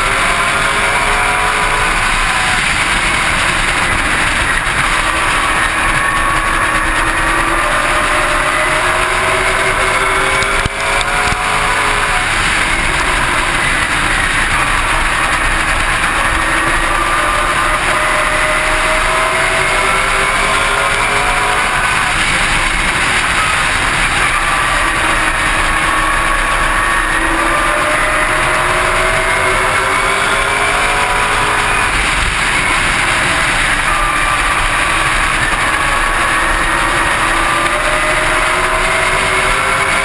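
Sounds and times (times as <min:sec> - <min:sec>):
race car engine at speed: 0:00.0 - 0:40.0.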